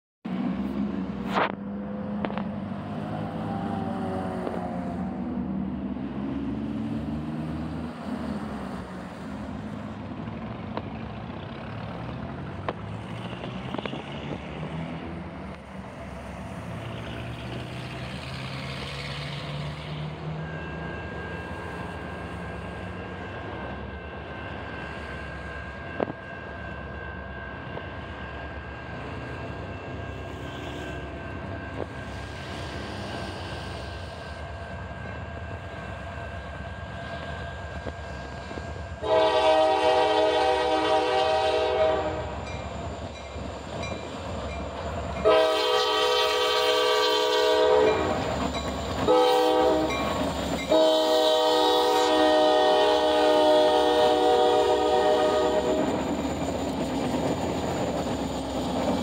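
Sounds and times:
diesel locomotives rumbling: 0.2 - 59.0
train air horn: 39.0 - 42.4, 45.2 - 48.3, 49.1 - 50.0, 50.7 - 56.0.

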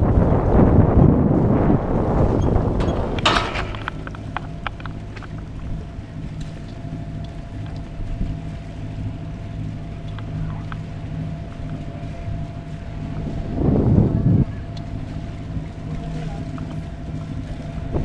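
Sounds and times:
steady low hum: 0.0 - 18.0
wind buffeting microphone: 0.0 - 18.0
light ticks: 6.4 - 7.9, 10.0 - 10.9, 14.7 - 15.0, 16.4 - 16.8.

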